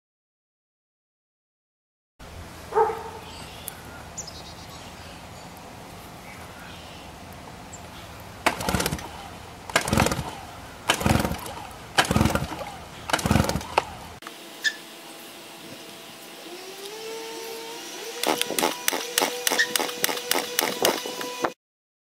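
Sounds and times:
engine chuffing without starting: 8.1 - 14.2, 18.0 - 21.4
starter cord yanks: 8.4 - 14.1, 18.2 - 21.3.

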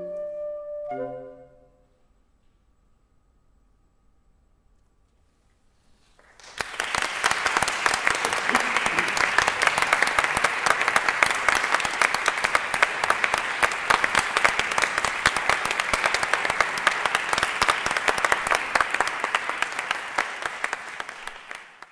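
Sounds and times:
audience applauding: 6.2 - 21.9.

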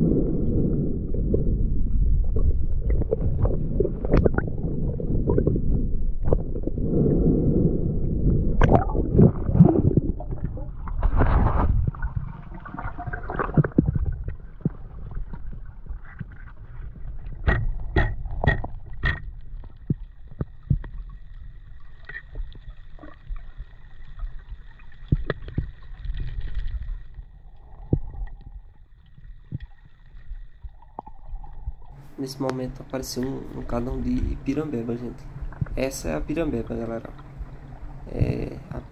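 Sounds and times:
underwater water rushing and gurgling: 0.0 - 38.9
sharp clicks and knocks: 17.4 - 21.0.

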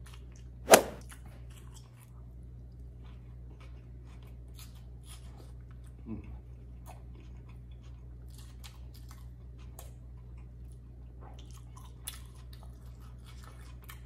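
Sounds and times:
person chewing food: 3.0 - 14.0.

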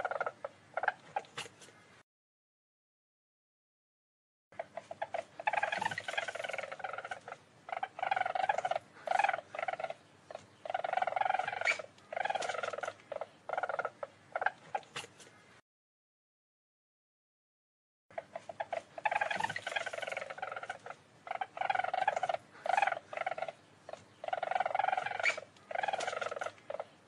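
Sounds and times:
weasel chattering: 0.0 - 1.6, 4.6 - 15.4, 18.1 - 27.0.

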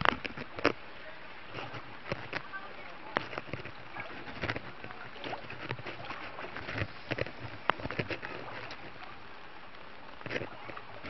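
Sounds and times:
floodwater flowing: 0.0 - 11.0
sharp splashes and knocks: 1.5 - 9.1.

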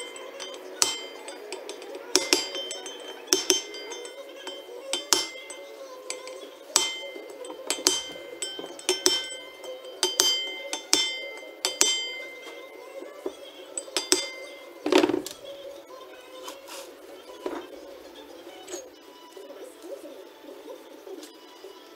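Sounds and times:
hammer striking metal: 0.0 - 15.4.

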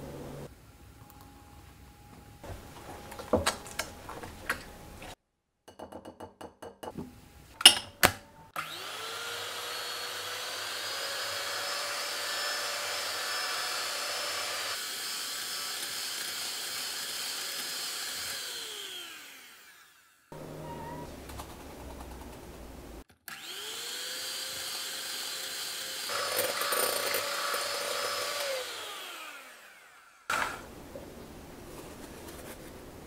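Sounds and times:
hand mixer motor whining: 8.6 - 20.3, 23.3 - 30.3.

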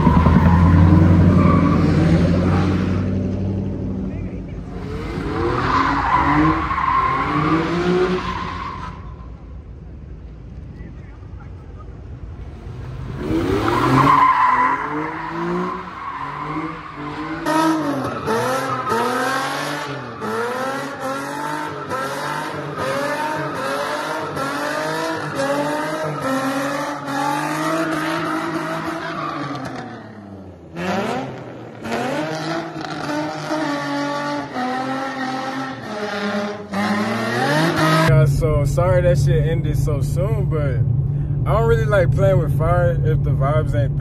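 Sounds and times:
car engine revving: 0.0 - 9.1, 12.0 - 44.0.

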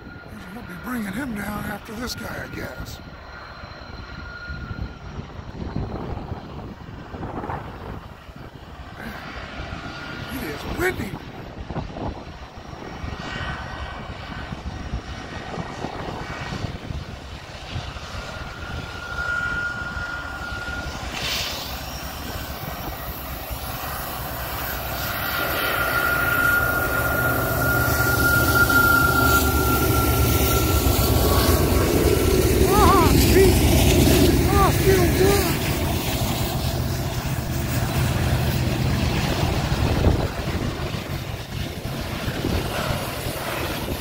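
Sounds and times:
diesel locomotive engine drone: 0.0 - 44.0
high steady whine: 0.0 - 44.0
wind buffeting microphone: 3.9 - 21.2, 26.4 - 44.0.

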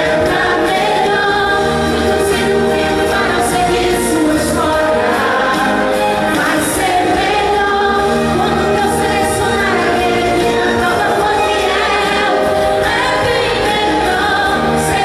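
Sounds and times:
musical backing: 0.0 - 15.0
woman singing gospel song: 0.0 - 15.0.

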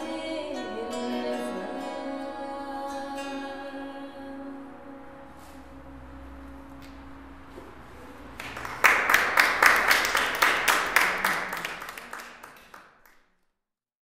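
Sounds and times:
audience applauding: 8.3 - 13.3.

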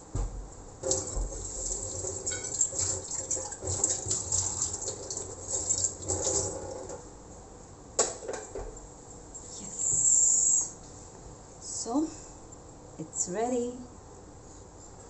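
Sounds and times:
water pouring into a vessel: 0.8 - 6.9.

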